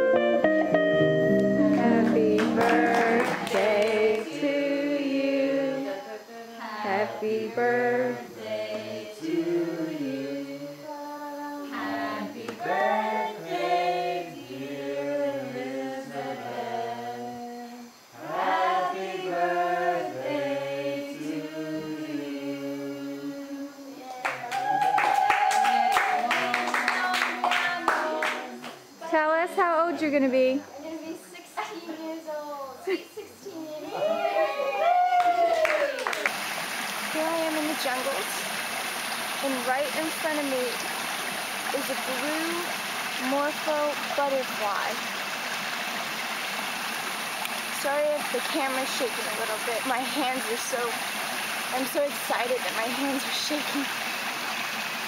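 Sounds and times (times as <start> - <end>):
person singing: 1.3 - 24.5.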